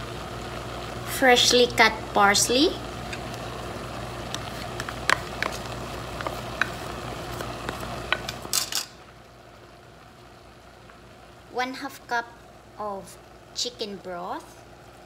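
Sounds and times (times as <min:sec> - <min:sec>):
meat sizzling in a pan: 0:00.0 - 0:15.0
spoon scraping a pan: 0:04.4 - 0:09.0.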